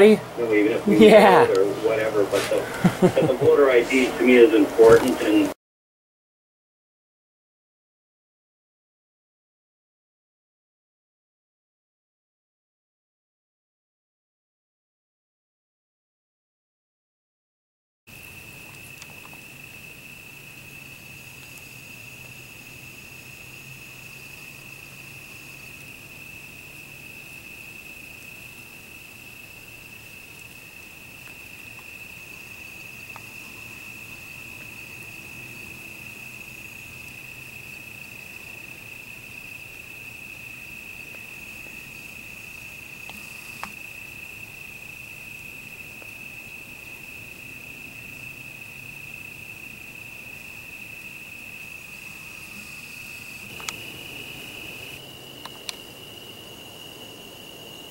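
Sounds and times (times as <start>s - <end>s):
crickets trilling: 0.0s - 5.6s, 18.1s - 57.9s.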